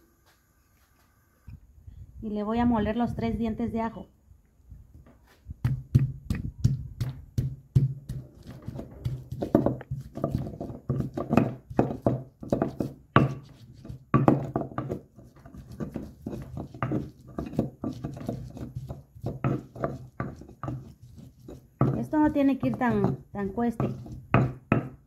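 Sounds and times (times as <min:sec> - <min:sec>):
pestle crushing garlic: 0:05.6 - 0:25.0
stone pestle knocking in mortar: 0:05.6 - 0:25.0.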